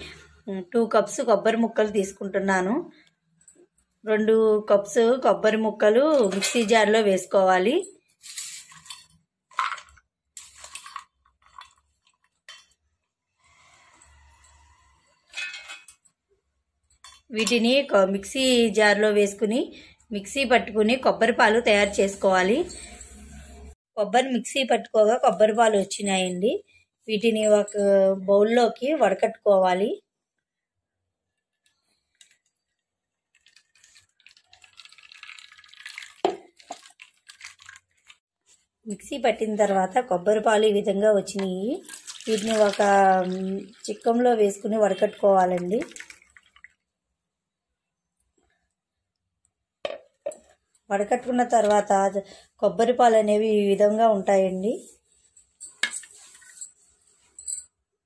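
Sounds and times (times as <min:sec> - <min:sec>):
coconut milk dripping: 0:31.5 - 0:38.2, 0:41.8 - 0:44.1, 0:45.5 - 0:46.9
wet coconut pulp squelching: 0:32.4 - 0:38.3.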